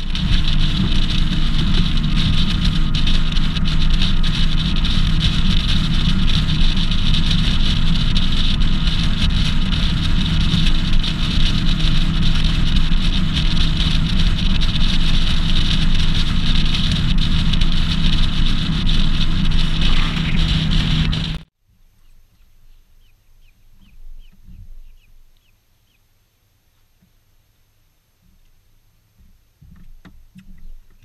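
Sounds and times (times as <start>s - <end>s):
outboard motor running: 0.0s - 21.5s.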